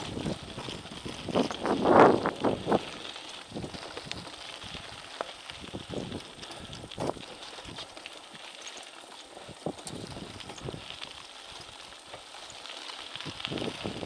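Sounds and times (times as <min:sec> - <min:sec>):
bike knocks and rattles: 0:00.0 - 0:04.8
bike tyres crunching on gravel: 0:00.0 - 0:14.0.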